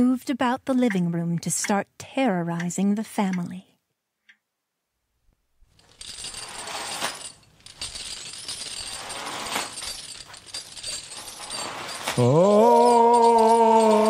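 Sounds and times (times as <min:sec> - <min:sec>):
metal chains rattling: 0:05.7 - 0:14.0.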